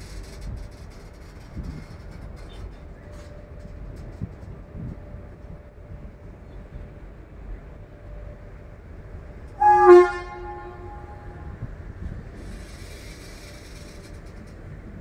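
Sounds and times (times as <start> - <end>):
rumble of moving freight train: 0.0 - 15.0
train horn blast: 9.5 - 11.7.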